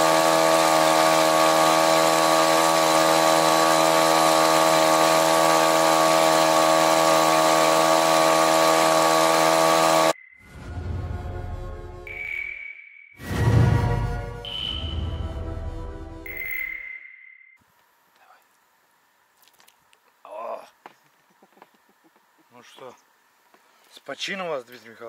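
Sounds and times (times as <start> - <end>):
small engine at high revs: 0.0 - 10.2.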